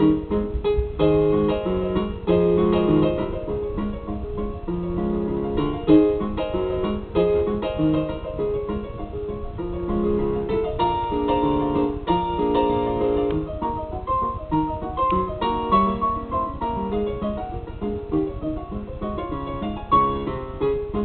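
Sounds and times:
blues piano music: 0.0s - 21.0s.

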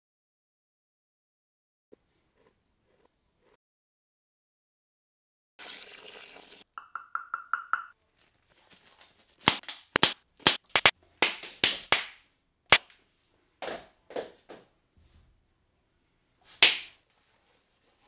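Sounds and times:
rubber glove snapping: 9.4s - 12.9s.

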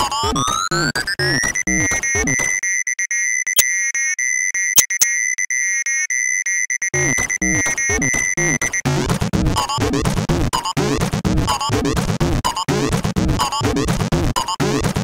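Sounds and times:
chiptune bass and drum beat: 0.0s - 2.6s, 7.0s - 15.0s.

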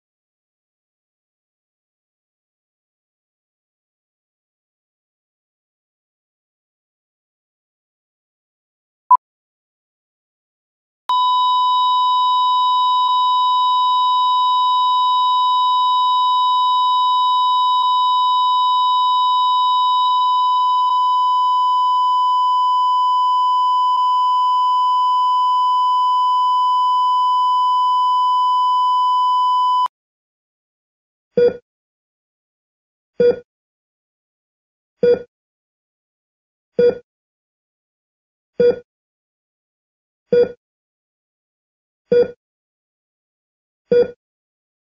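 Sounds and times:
continuous high beep: 11.1s - 29.9s.

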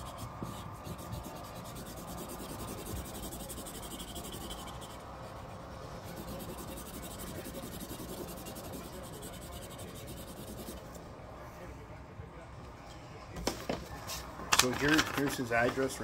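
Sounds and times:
pen scribbling: 0.0s - 5.0s, 6.0s - 11.0s.

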